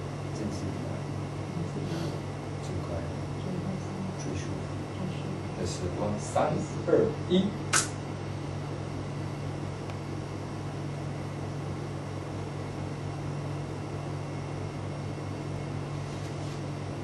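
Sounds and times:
low hum with hiss: 0.0 - 17.0.

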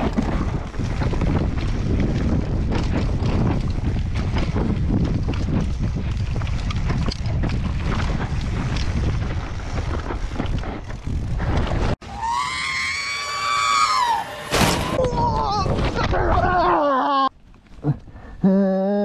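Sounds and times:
wind buffeting microphone: 0.0 - 12.0
person screaming: 12.1 - 17.3.

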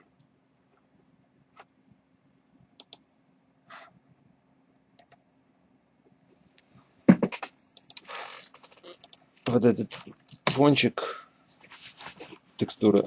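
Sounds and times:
faint steady hum: 0.0 - 13.0
computer mouse clicks: 2.8 - 3.0, 5.0 - 5.2, 7.8 - 9.2.

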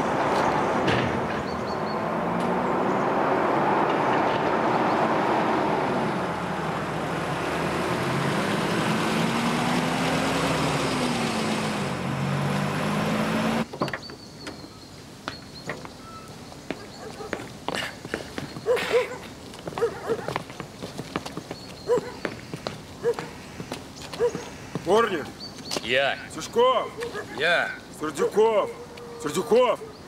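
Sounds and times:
truck engine driving past: 0.0 - 13.7.

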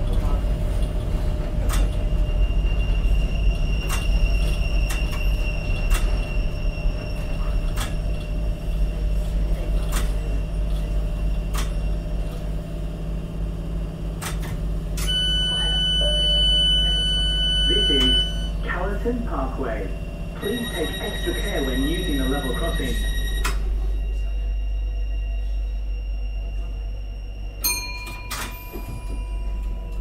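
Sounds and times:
train low rumble: 0.0 - 30.0
wheels clicking over rails: 3.8 - 6.3
electronic beep tone: 15.0 - 18.6.

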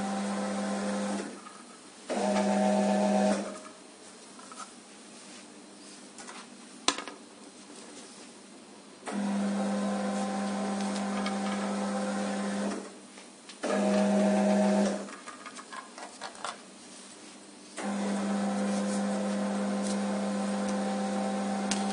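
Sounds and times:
conveyor belt motor humming: 0.0 - 1.4, 9.1 - 12.9, 17.8 - 21.9.

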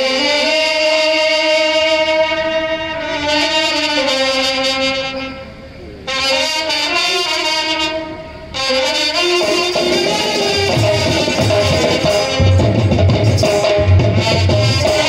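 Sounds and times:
brass band playing held chords: 0.0 - 15.0.

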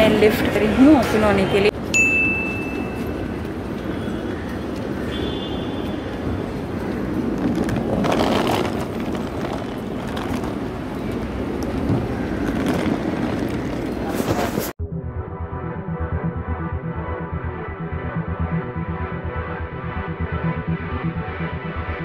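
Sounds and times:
traffic: 0.0 - 14.8
luggage trolley rattling over pavement: 5.2 - 14.7.

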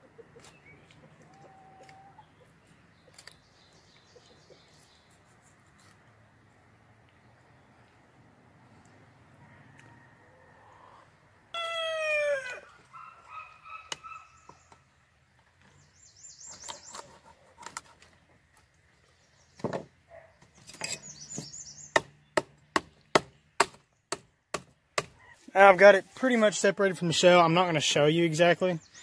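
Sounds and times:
loud bird call: 11.5 - 14.8
high bird chirps: 12.9 - 14.9, 15.7 - 17.2, 20.6 - 22.4
sharp evenly spaced knocks: 21.4 - 25.1.

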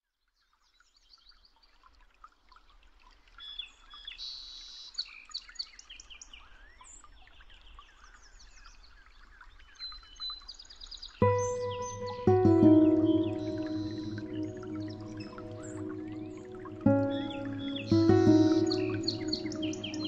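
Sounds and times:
birds chirping: 11.2 - 20.0
faint low background noise: 11.2 - 20.0.

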